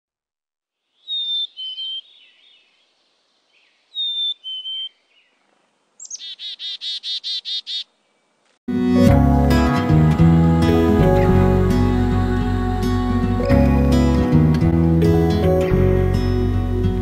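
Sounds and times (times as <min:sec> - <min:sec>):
chickadee buzzy call: 0:01.0 - 0:02.2
chickadee whistling song: 0:01.0 - 0:02.8, 0:03.6 - 0:05.0, 0:06.0 - 0:07.9.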